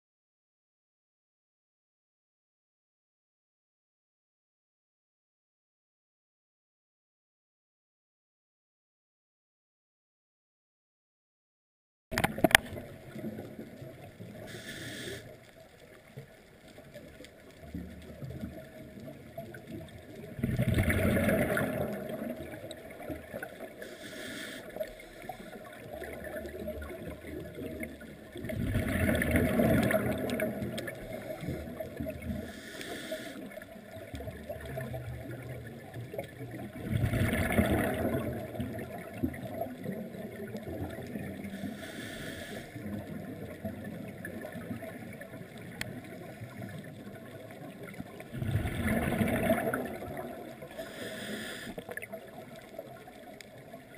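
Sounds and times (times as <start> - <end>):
regulator hissing: 14.5 - 15.3
bubbles from diver exhaling: 20.2 - 23.4, 25.8 - 32.5, 34.2 - 41.4, 48.3 - 50.7.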